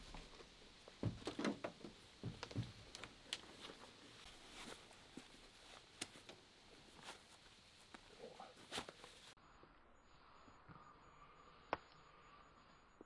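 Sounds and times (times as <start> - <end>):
boots rustling and scuffing: 0.0 - 9.4.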